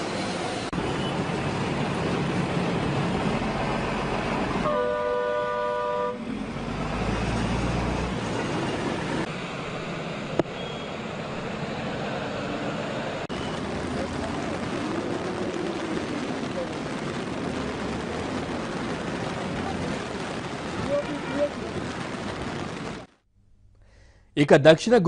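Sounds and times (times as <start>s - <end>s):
traffic on flooded highway: 0.0s - 23.1s
vehicle horn two-note blast: 4.6s - 6.2s.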